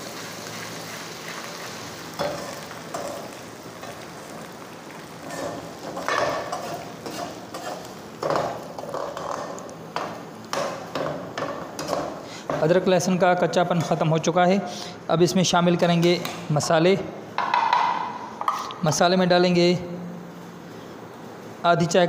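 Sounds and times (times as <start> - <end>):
food sizzling in hot oil: 0.0 - 13.5.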